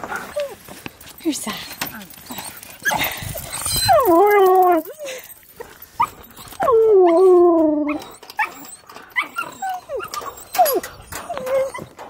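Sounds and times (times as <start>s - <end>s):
dog whining: 1.6s - 5.3s, 6.0s - 12.0s
dog howling: 3.6s - 4.9s.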